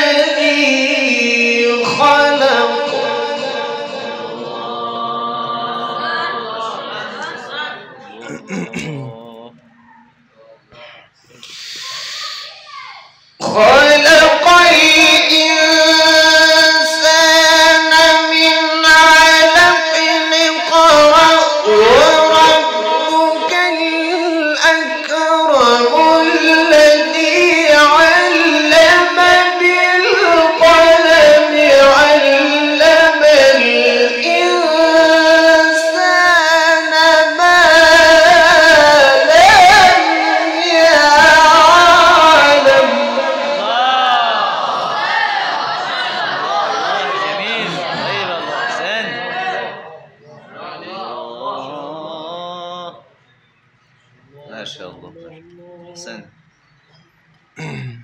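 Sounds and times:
young man reciting melodically: 0.0s - 12.4s, 13.2s - 45.0s, 45.8s - 58.0s.

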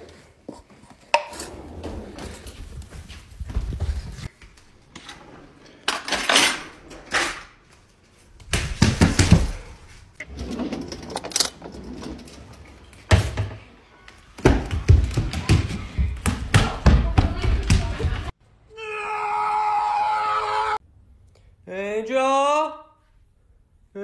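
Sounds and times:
drawer being pulled open: 10.2s - 12.8s.

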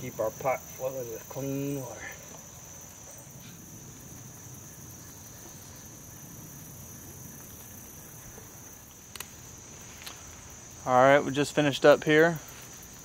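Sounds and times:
crickets chirping: 0.0s - 13.0s.

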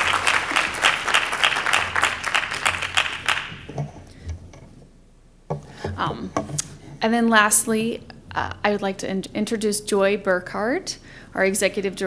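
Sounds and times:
audience applauding: 0.0s - 3.7s.

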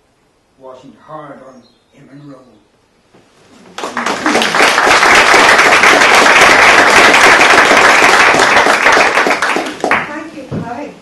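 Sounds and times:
audience applauding: 3.8s - 10.1s.

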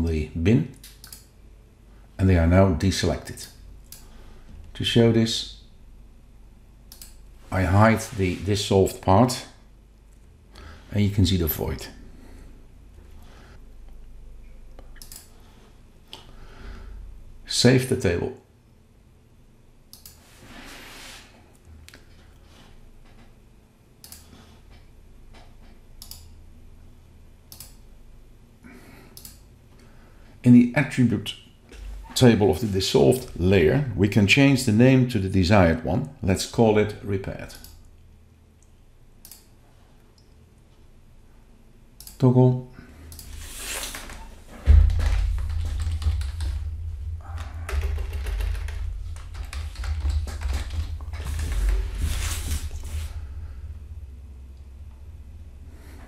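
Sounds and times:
steady low hum: 0.0s - 56.0s
computer mouse clicking: 0.8s - 1.3s, 6.9s - 7.2s, 14.8s - 15.3s, 19.9s - 20.2s, 24.0s - 24.3s, 26.0s - 26.3s, 27.5s - 27.8s, 29.2s - 29.4s, 39.2s - 39.5s
low hum: 42.8s - 56.0s.

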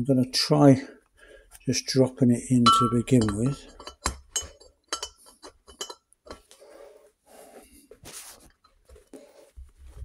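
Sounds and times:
light metallic clicks and clinks: 2.7s - 6.4s
soft rustling: 6.5s - 10.0s.

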